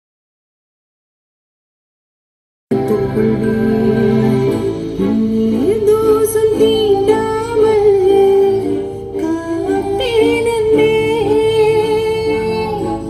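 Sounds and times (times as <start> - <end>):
steady low musical backing: 2.7 - 13.0.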